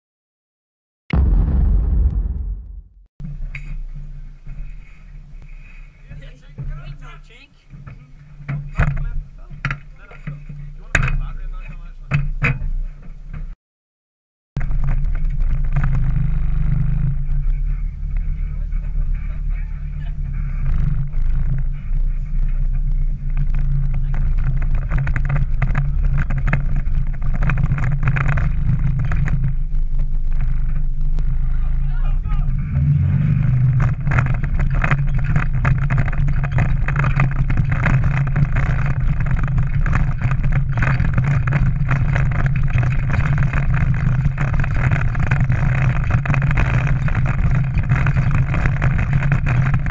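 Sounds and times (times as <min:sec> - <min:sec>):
pickup truck engine rumbling: 0:14.6 - 0:49.9
truck knocking and rattling: 0:32.8 - 0:49.9.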